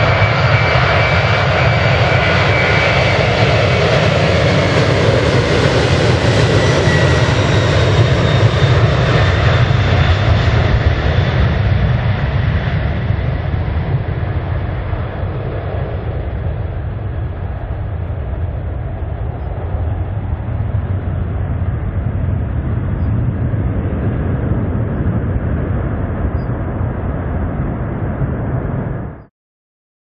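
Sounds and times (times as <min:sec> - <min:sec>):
jet engines at takeoff thrust: 0:00.0 - 0:29.3.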